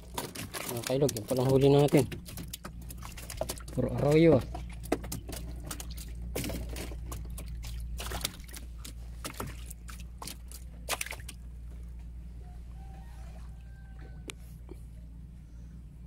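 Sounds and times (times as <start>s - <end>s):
water splashing on boat floor: 0.0s - 11.4s
steady low rumble: 1.5s - 16.0s.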